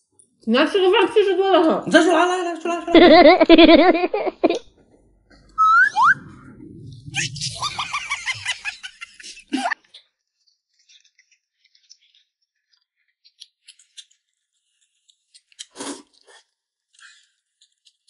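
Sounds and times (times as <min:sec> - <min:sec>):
whistle-like sound: 0:05.6 - 0:08.5.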